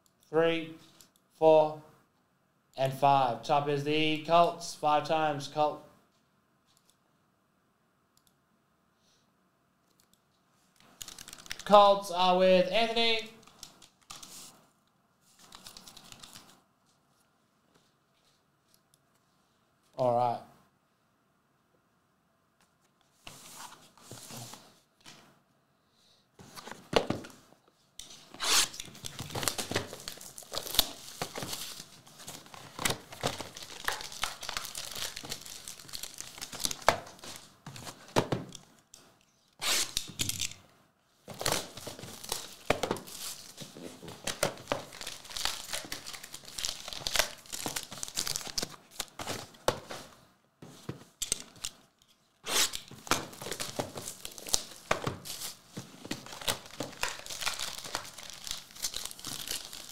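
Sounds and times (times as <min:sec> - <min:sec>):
plastic shrink-wrap crinkling and tearing: 0:28.4 - 0:37.5, 0:41.4 - 0:43.6, 0:44.2 - 0:49.2, 0:52.5 - 0:59.9.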